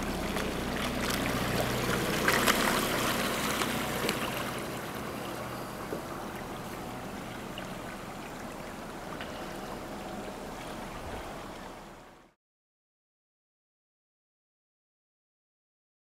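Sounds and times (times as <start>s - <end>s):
water washing and trickling: 0.0s - 12.4s.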